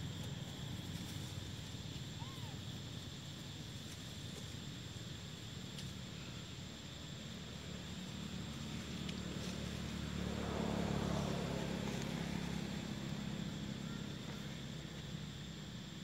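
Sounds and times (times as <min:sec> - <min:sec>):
vehicle engine humming passing: 0:07.2 - 0:16.0.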